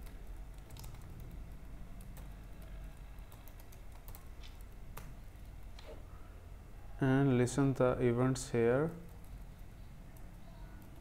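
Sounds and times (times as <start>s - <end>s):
keyboard typing clicks: 0.0s - 1.4s
low background hum: 0.0s - 11.0s.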